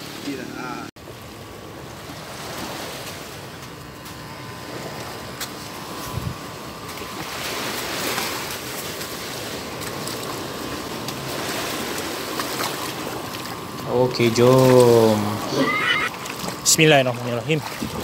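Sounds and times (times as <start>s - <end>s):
small waves washing on sand: 0.0s - 18.0s.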